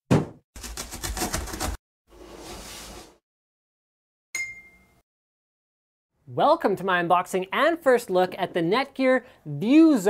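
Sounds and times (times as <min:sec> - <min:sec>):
blade rasping through cardboard: 0:00.6 - 0:01.8
short bright ringing tone: 0:04.4 - 0:05.0.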